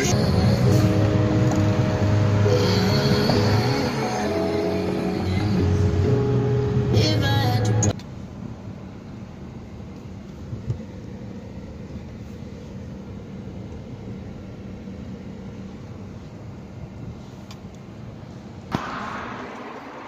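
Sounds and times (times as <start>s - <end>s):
car cabin rolling noise: 0.0s - 6.8s
faint engine hum: 0.0s - 20.0s.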